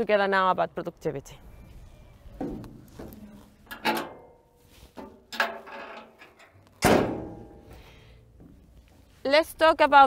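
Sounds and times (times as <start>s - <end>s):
metal door banging shut: 6.8s - 7.5s.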